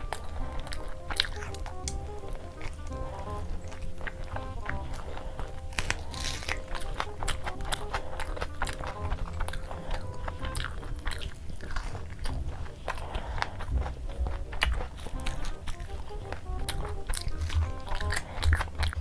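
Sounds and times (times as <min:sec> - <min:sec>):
crunching: 0:00.0 - 0:19.0
person chewing and biting food: 0:00.0 - 0:19.0
wet mouth clicks: 0:00.0 - 0:19.0.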